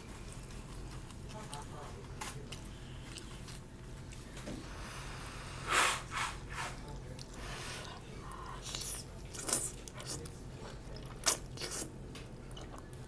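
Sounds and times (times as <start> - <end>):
faint eating sounds: 0.0 - 13.0
steady low hum: 0.0 - 13.0
breathy puffs of air: 4.6 - 6.7.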